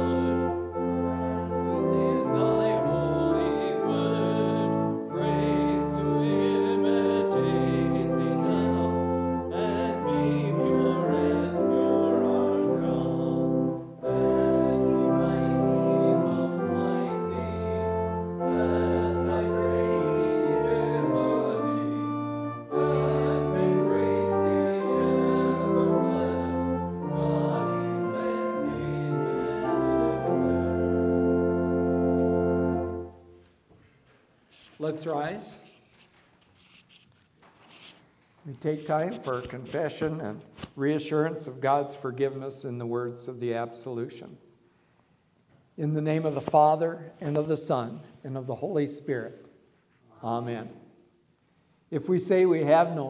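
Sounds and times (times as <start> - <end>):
church organ chords: 0.0 - 33.5.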